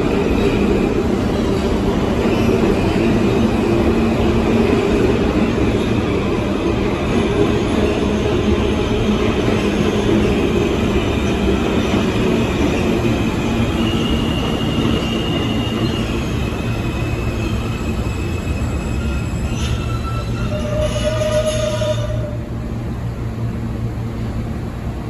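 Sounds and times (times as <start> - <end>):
subway train wheels rumbling on rail: 0.0 - 25.0
high wheel squeals: 12.7 - 22.4.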